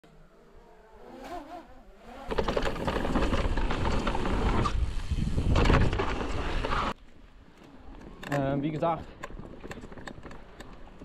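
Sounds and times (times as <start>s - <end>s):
mountain bike rumbling on dirt: 1.0s - 7.0s
wind buffeting microphone: 4.0s - 6.9s.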